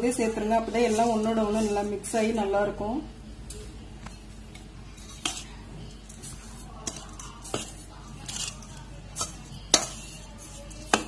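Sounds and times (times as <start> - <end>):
spoon scraping steel bowl: 4.9 - 11.0.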